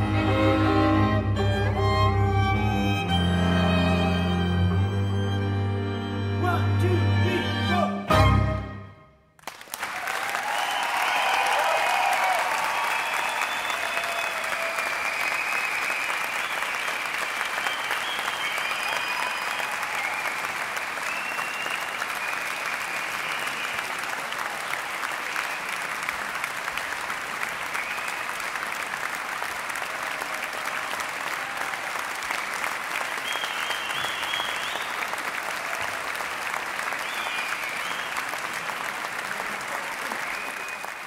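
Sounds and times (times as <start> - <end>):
audience applauding: 9.4 - 41.0.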